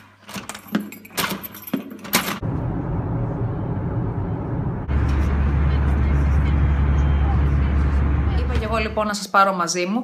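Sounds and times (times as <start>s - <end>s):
keys jangling: 0.3s - 2.4s
car road and engine noise: 2.4s - 9.0s.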